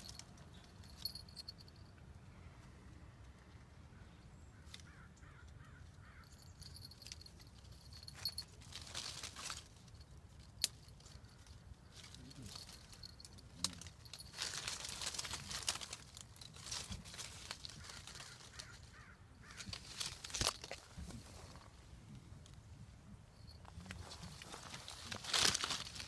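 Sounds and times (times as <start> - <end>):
leaves and branches rustling: 0.0 - 1.9, 4.5 - 26.0
collar tag jingling: 0.0 - 2.0, 6.0 - 21.2, 23.3 - 26.0.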